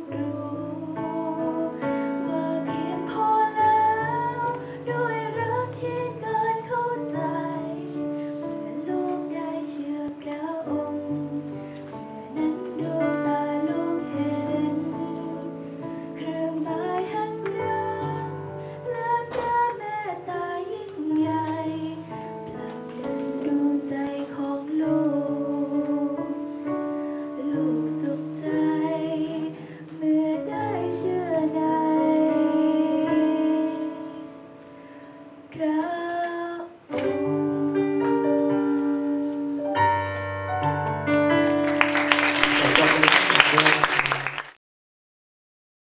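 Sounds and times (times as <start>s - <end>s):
woman singing into a microphone: 0.0s - 34.5s, 35.5s - 39.9s
instrumental accompaniment with bass: 36.9s - 44.2s.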